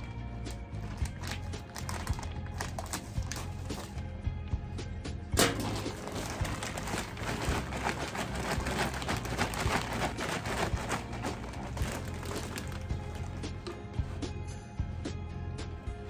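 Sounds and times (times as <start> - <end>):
plastic bag rustling: 0.0 - 4.0, 5.4 - 14.4
scissors cutting plastic bag: 0.0 - 4.0, 5.5 - 14.0
soil pouring: 5.4 - 14.2.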